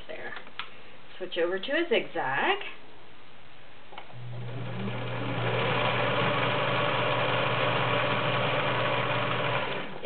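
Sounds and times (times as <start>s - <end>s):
sewing machine running: 4.2s - 10.0s.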